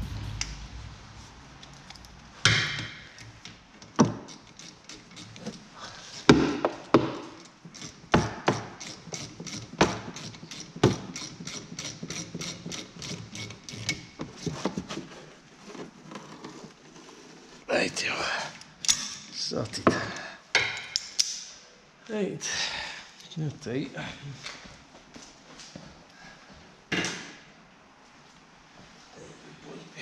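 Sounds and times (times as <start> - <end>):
hand ratchet clicking: 4.1 - 5.6, 7.4 - 14.0.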